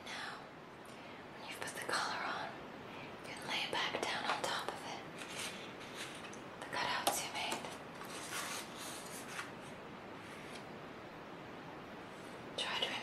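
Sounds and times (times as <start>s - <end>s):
soft whispering: 0.0s - 0.5s, 1.2s - 5.6s, 6.6s - 7.8s, 12.1s - 13.0s
paper rustling and sliding: 5.2s - 6.3s, 7.9s - 10.6s.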